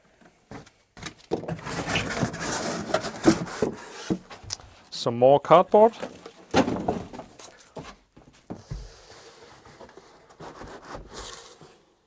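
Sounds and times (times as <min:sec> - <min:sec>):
cardboard scraping and rubbing: 0:01.4 - 0:04.5, 0:08.7 - 0:12.0.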